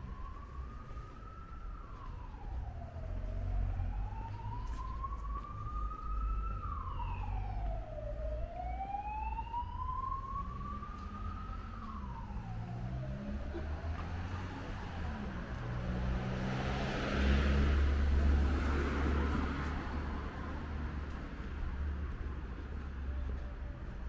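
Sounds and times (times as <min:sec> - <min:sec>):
emergency siren wailing: 0:00.0 - 0:24.0
street traffic rumble: 0:00.0 - 0:24.0.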